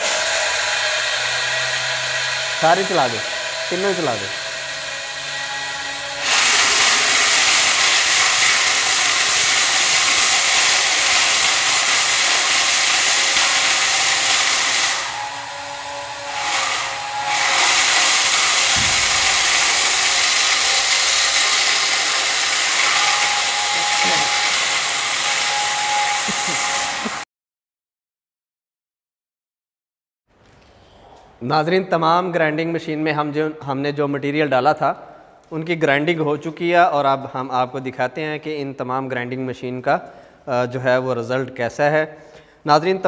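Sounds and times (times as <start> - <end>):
electric spice grinders whirring: 0.0 - 27.2.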